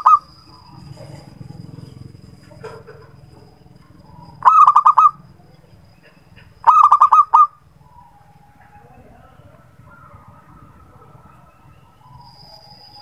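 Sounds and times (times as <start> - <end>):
dove staccato cooing: 0.0 - 12.4.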